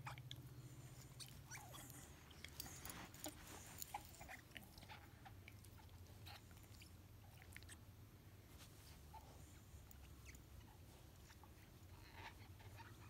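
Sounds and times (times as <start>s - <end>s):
dog chewing toy: 0.0s - 7.8s.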